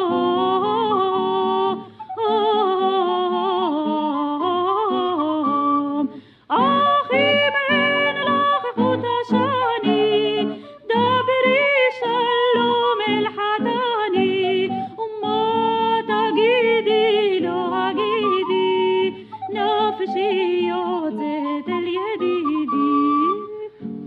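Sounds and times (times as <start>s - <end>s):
woman singing: 0.0s - 23.9s.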